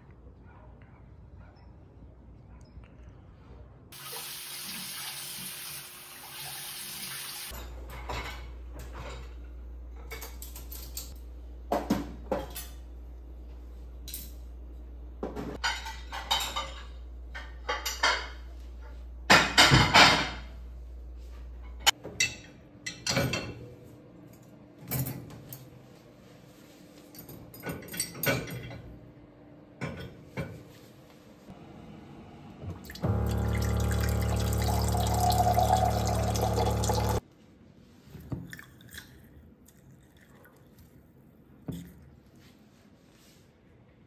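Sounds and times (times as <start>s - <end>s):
dishes and cutlery clattering: 7.5s - 9.4s, 11.8s - 12.8s, 15.5s - 18.5s, 27.1s - 28.9s
tap running: 32.9s - 37.2s.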